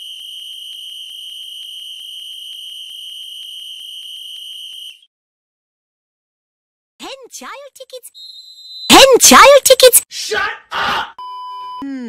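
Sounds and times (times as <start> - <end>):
fluttering high whistle: 0.0 - 5.1, 8.2 - 8.9.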